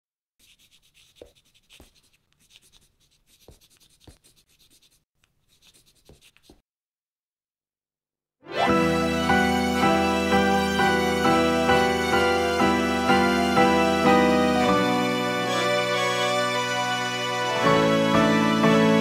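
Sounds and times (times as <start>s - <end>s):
pen scratching handwriting: 0.4s - 6.6s
music: 8.4s - 19.0s.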